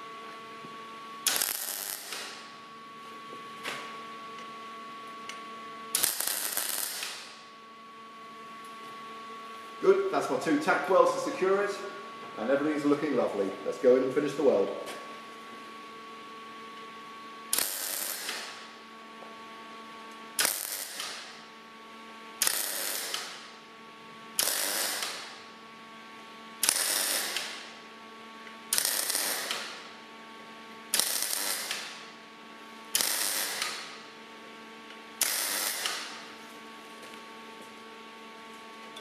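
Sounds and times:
electrical hum: 0:00.0 - 0:39.0
welder crackling: 0:01.2 - 0:02.5, 0:06.0 - 0:07.4, 0:17.5 - 0:18.7, 0:20.4 - 0:21.4, 0:22.4 - 0:23.5, 0:24.4 - 0:25.4, 0:26.6 - 0:27.7, 0:28.7 - 0:29.9, 0:30.9 - 0:32.0, 0:33.0 - 0:34.0, 0:35.2 - 0:36.2.

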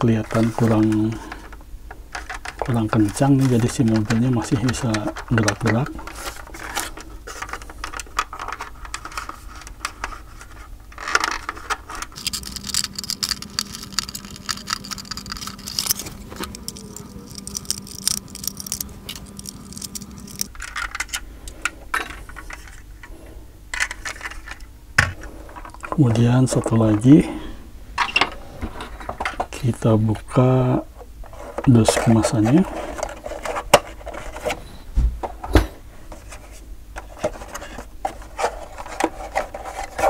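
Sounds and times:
model car and box handling: 0:00.2 - 0:21.2, 0:31.3 - 0:34.6, 0:36.1 - 0:40.0
low hum: 0:11.4 - 0:27.9.

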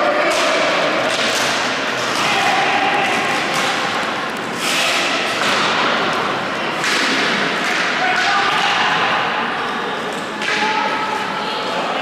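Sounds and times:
din of play in a hall: 0:00.0 - 0:12.0
knocks of sticks and ball: 0:06.8 - 0:08.7.

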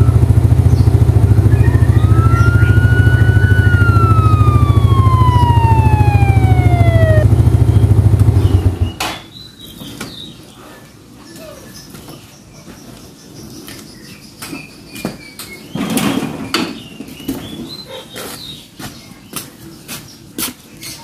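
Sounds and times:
scooter engine idling: 0:00.0 - 0:09.0
faint siren wail: 0:01.2 - 0:08.9.

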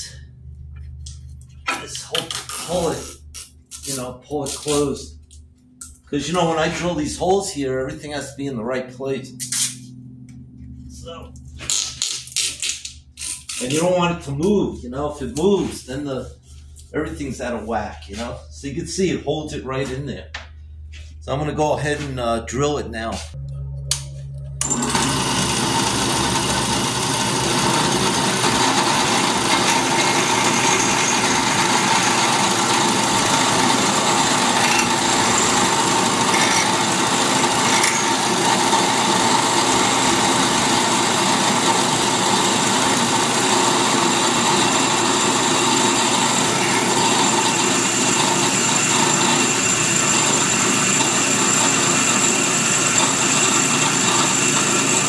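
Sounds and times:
high whine: 0:13.6 - 0:26.7
drill press drilling metal: 0:24.6 - 0:55.0.

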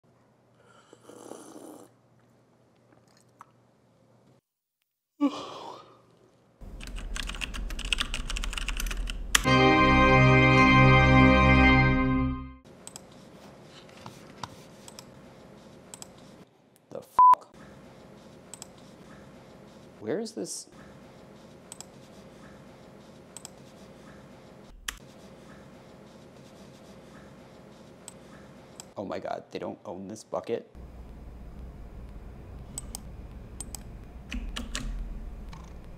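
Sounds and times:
person yawning: 0:05.2 - 0:06.0
fast typing on keyboard: 0:06.7 - 0:09.5
music with organ-like chords: 0:09.4 - 0:12.6
faint steady hum: 0:30.8 - 0:35.9.

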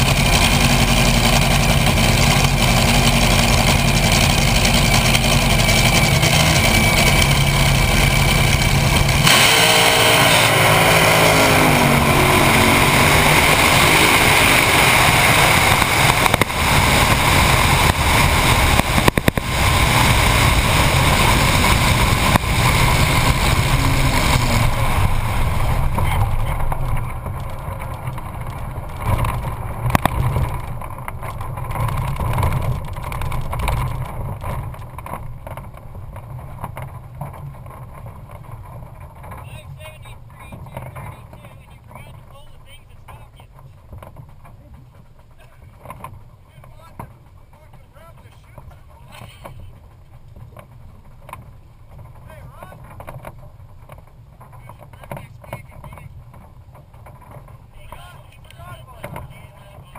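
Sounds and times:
dragster engine roaring: 0:00.0 - 0:59.9
wind rush: 0:05.5 - 0:34.4.

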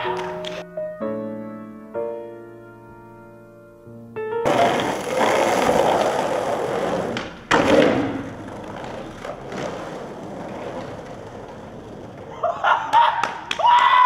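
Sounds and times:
skateboard wheels rolling on paving: 0:04.4 - 0:14.0
sharp skateboard clack: 0:04.5 - 0:12.3.

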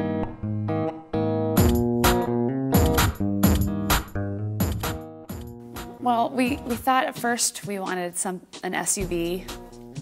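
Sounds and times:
background guitar music: 0:00.0 - 0:10.0.

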